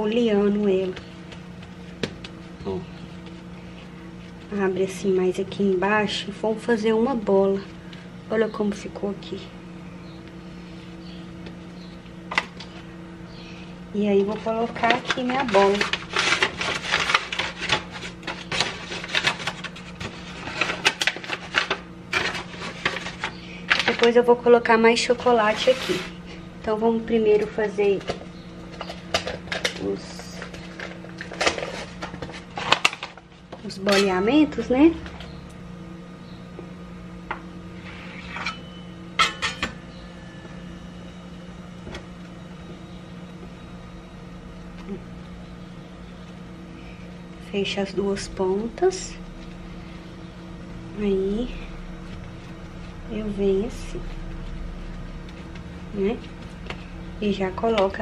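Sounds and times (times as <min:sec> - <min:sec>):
steady low hum: 0:00.0 - 0:58.0
hands rustling dough and paper: 0:14.1 - 0:24.0.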